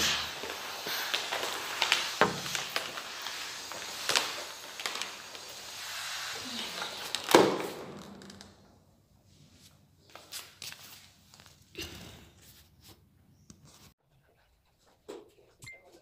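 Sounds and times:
rustling: 0:00.0 - 0:08.5.

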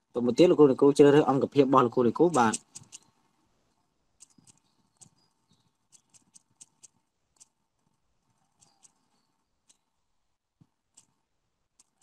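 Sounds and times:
keyboard typing clicks: 0:02.3 - 0:03.0, 0:05.9 - 0:07.5, 0:08.5 - 0:09.8.

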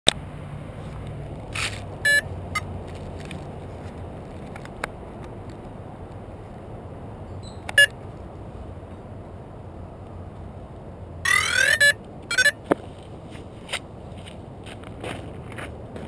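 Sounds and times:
short electronic beeps: 0:02.1 - 0:02.3, 0:07.4 - 0:07.9, 0:11.3 - 0:12.6.

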